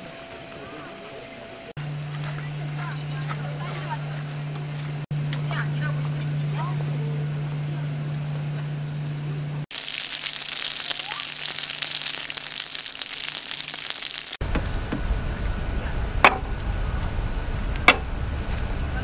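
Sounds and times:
food sizzling on griddle: 9.7 - 14.7
low rushing noise: 14.4 - 19.0.

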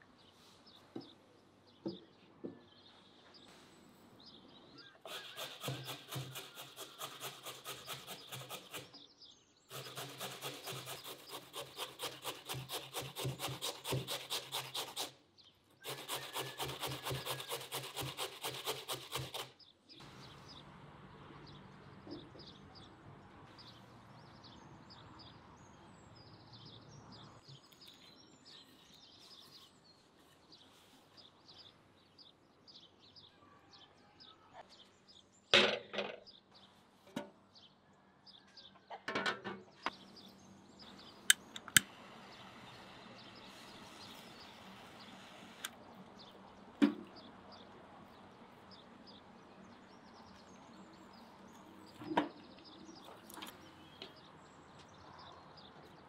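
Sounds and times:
utensil scraping wood: 5.0 - 9.0, 9.7 - 15.2, 15.8 - 19.6.

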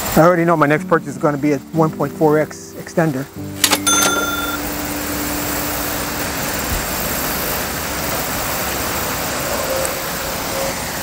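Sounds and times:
cash register ding: 3.6 - 5.0
distant traffic roar: 4.7 - 11.0.

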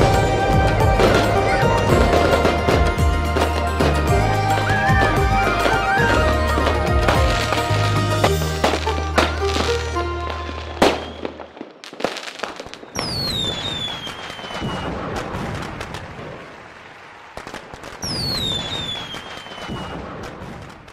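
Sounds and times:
firework crackling hiss: 0.0 - 16.4
fireworks bangs and pops: 0.0 - 20.9
whistling firework: 0.0 - 20.9.

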